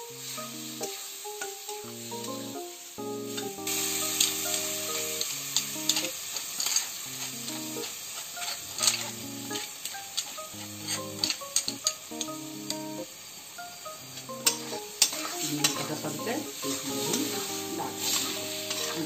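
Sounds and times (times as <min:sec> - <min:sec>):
soft slow background music: 0:00.0 - 0:19.0
vegetables sizzling in hot oil: 0:00.0 - 0:19.0
spoon clicking against pan: 0:05.2 - 0:12.8, 0:14.2 - 0:15.8.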